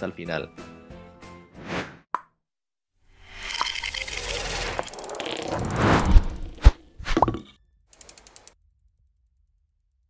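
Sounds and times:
background music: 0:00.0 - 0:01.6
whoosh: 0:04.3 - 0:07.2.

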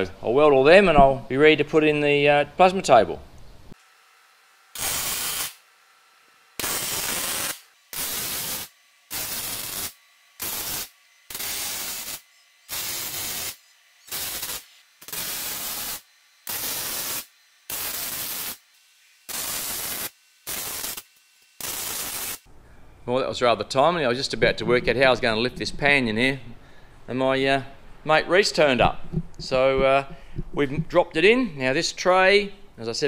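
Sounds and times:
arc welding crackling hiss: 0:04.7 - 0:05.7, 0:06.6 - 0:22.5.

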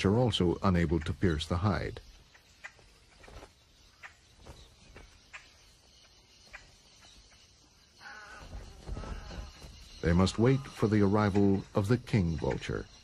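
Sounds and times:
vultures pecking and shuffling: 0:00.7 - 0:13.0.

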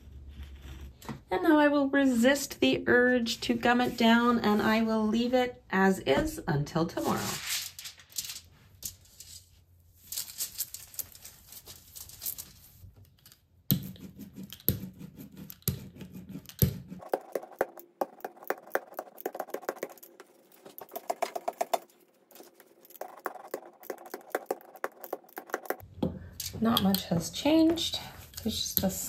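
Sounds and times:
ink roller rolling over foil: 0:17.0 - 0:25.8
fast crackle of ticks: 0:22.8 - 0:25.8.

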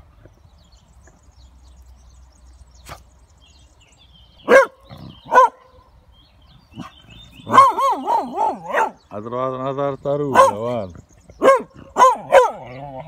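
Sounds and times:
dog barking: 0:04.4 - 0:05.7, 0:06.8 - 0:09.0, 0:10.3 - 0:10.8, 0:11.4 - 0:12.8.

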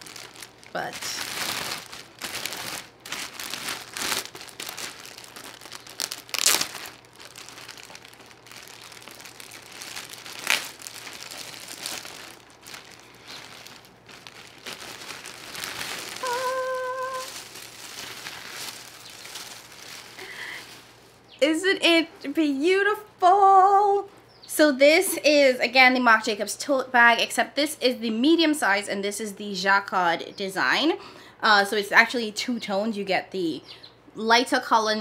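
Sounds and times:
plastic bag crinkling: 0:00.0 - 0:21.4.

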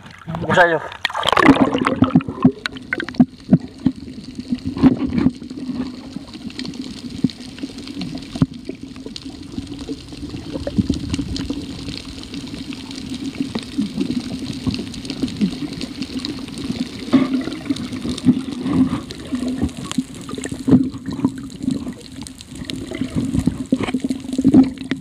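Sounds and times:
underwater clicks and knocks: 0:00.0 - 0:04.0, 0:04.6 - 0:06.0, 0:17.1 - 0:25.0
camera splashing into water: 0:00.9 - 0:03.2.

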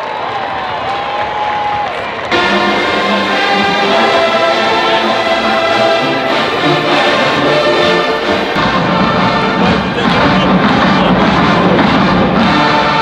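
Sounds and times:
brass band playing: 0:02.3 - 0:13.0.

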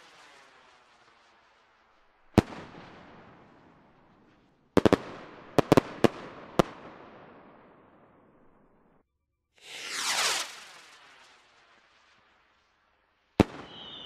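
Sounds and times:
firework crackling reports: 0:00.0 - 0:02.9, 0:09.6 - 0:14.0
firework bang: 0:09.6 - 0:12.0.

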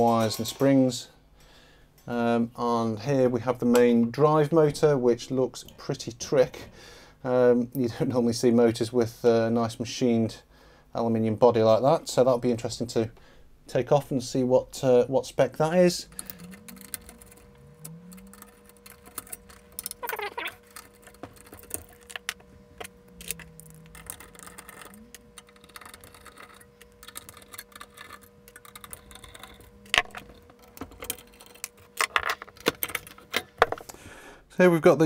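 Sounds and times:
metal parts clinking: 0:00.0 - 0:01.0, 0:16.1 - 0:33.9.

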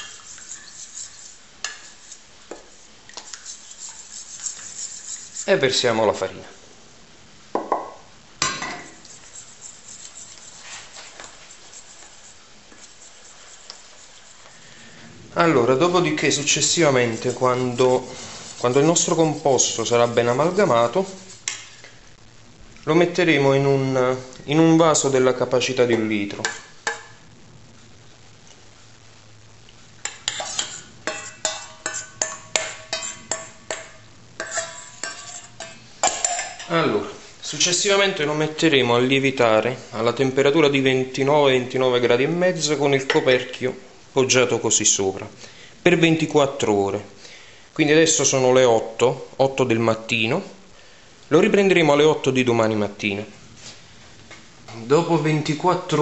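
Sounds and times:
metal bowls clinking: 0:00.0 - 0:02.0, 0:30.1 - 0:36.8
spoon stirring in metal bowl: 0:00.0 - 0:05.8, 0:08.4 - 0:15.0, 0:15.8 - 0:21.9, 0:25.9 - 0:27.2, 0:30.0 - 0:36.7.

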